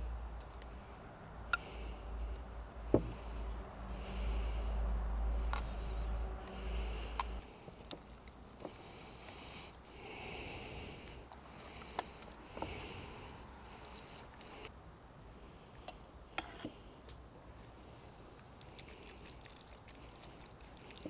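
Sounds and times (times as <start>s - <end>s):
wet rubbing of sauce on meat: 11.1s - 14.7s, 18.4s - 21.0s.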